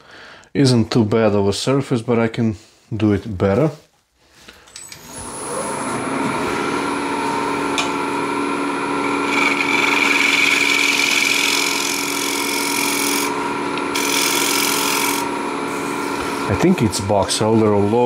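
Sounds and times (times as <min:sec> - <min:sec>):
lathe motor hum: 0:05.1 - 0:18.0
wood cutting hiss on lathe: 0:09.1 - 0:16.6.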